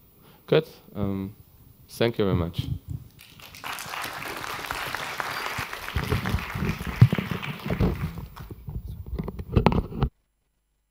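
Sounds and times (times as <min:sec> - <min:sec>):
audience applauding: 0:03.2 - 0:08.6.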